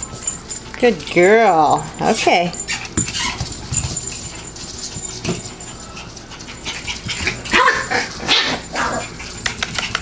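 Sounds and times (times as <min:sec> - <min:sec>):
puppy claws scuffling on wood floor: 0:02.1 - 0:10.0
puppy whimpering: 0:02.7 - 0:03.5.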